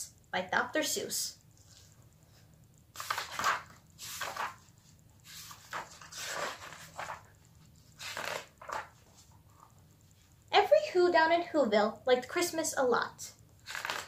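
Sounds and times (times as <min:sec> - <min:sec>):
book pages rustling: 0:01.6 - 0:10.3, 0:13.6 - 0:14.0.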